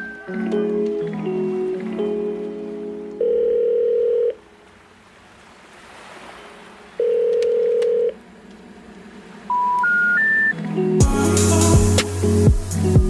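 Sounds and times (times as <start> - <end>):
telephone ringback tone: 3.2 - 4.4, 7.0 - 8.2.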